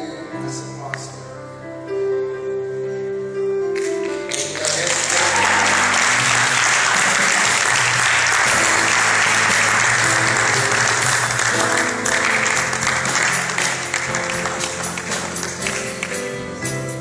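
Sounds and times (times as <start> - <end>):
instrumental music: 0.0 - 17.0
congregation applauding: 3.8 - 16.4.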